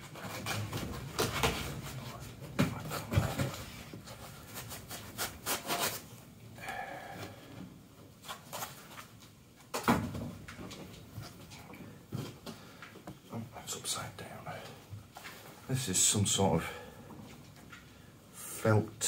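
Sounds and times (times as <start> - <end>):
fabric rubbing and rustling: 0.0 - 6.4.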